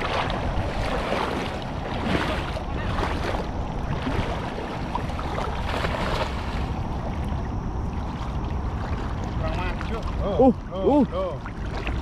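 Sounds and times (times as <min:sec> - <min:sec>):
water sloshing and splashing: 0:00.0 - 0:12.0
wind buffeting microphone: 0:00.0 - 0:12.0.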